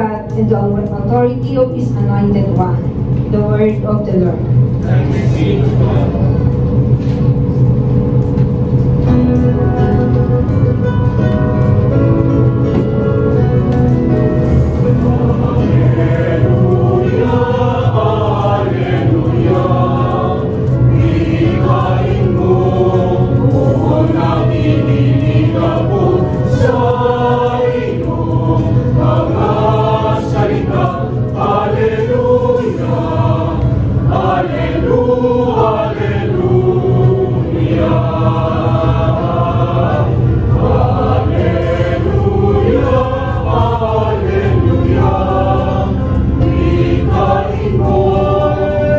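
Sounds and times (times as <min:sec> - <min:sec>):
mixed choir singing: 0:04.8 - 0:06.6, 0:14.1 - 0:48.9.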